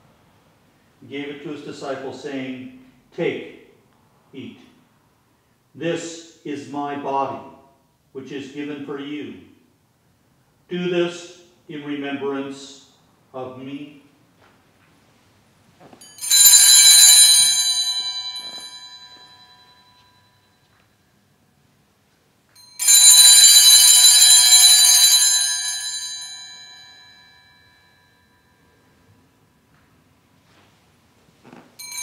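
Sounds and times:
small altar bells ringing: 16.0s - 21.7s, 22.5s - 29.9s, 31.8s - 32.0s.

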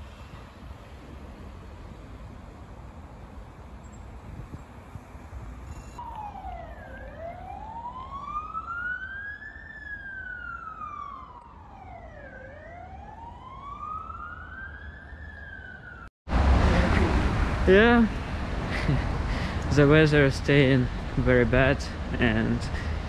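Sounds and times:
low rumble of city traffic: 0.0s - 23.0s
siren wailing: 5.9s - 16.1s.

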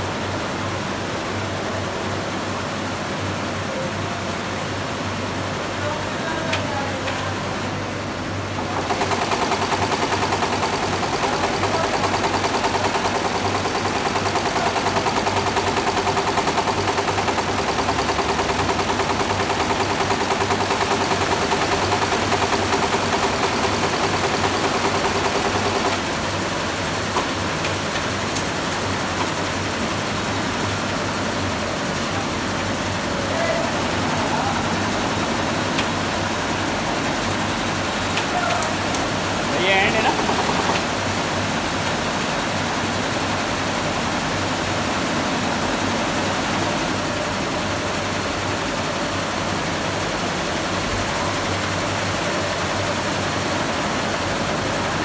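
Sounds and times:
steady machine hum: 7.3s - 43.4s
embroidery machine needles rattling: 8.7s - 26.0s, 39.5s - 40.9s.

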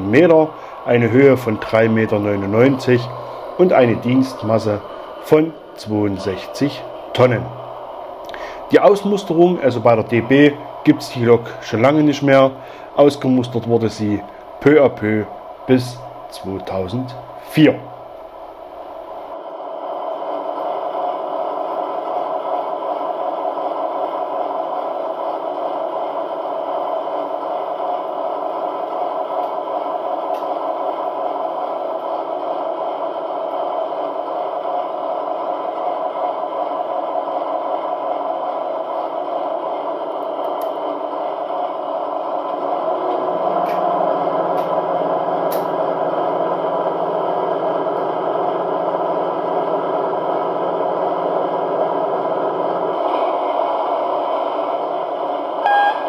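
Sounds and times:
deep hum: 0.0s - 13.7s
model train running on track: 0.0s - 56.0s.

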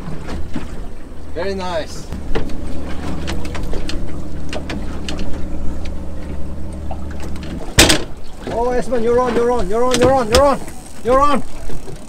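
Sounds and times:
outboard motor idling: 0.0s - 12.0s.

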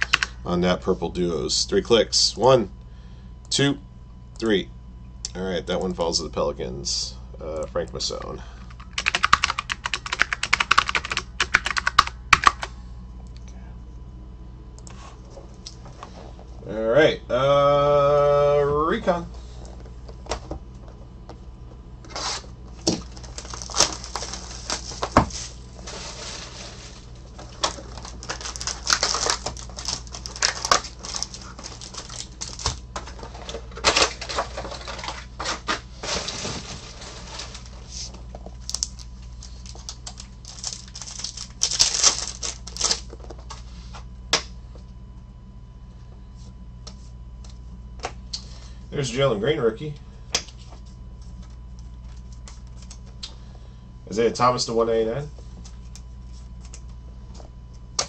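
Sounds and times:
foil crinkling and tearing: 22.1s - 43.2s.

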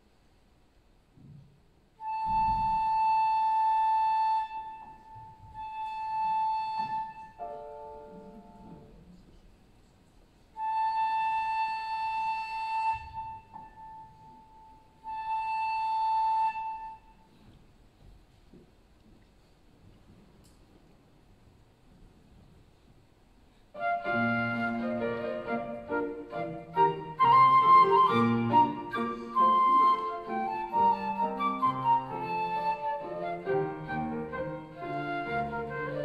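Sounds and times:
flute playing long high note: 2.0s - 8.1s, 10.6s - 17.4s, 23.8s - 36.0s.

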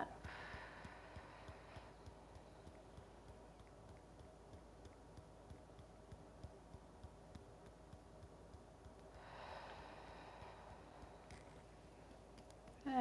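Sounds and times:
fingertips tapping on chest: 0.0s - 13.0s
breathy exhale: 9.2s - 11.0s.

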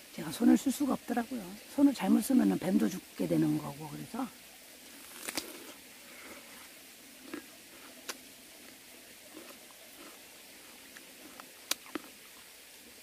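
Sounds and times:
faint hiss: 0.0s - 13.0s
crisp bite into melon: 5.0s - 5.8s
chewing with crunches: 5.0s - 6.6s, 7.2s - 12.5s.

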